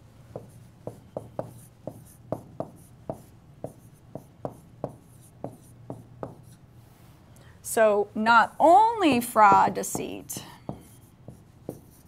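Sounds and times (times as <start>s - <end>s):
pen tapping on screen: 9.1s - 12.0s.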